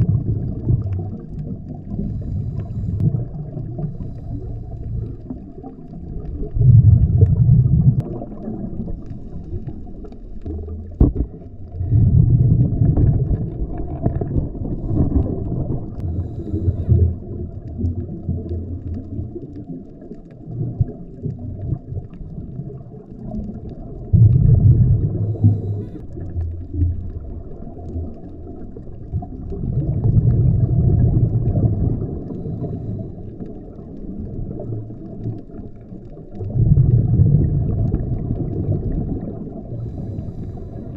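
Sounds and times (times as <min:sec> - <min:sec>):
exhaled bubbles rumbling: 0:00.0 - 0:40.9
muffled underwater wash: 0:00.0 - 0:40.9
diver breathing through regulator: 0:01.8 - 0:03.2, 0:03.8 - 0:05.3, 0:14.7 - 0:17.2, 0:25.0 - 0:26.2, 0:32.3 - 0:33.4, 0:39.7 - 0:40.9.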